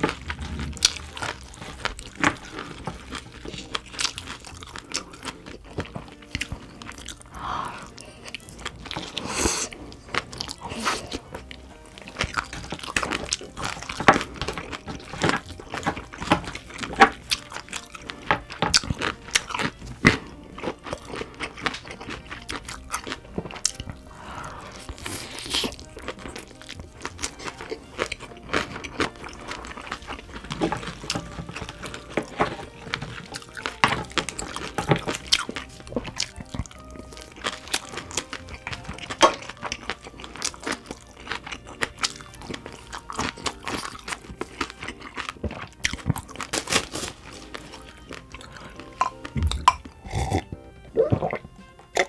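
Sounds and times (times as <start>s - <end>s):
chewing: 0.0s - 52.0s
crab shell cracking between teeth: 10.2s - 24.1s, 24.7s - 50.5s.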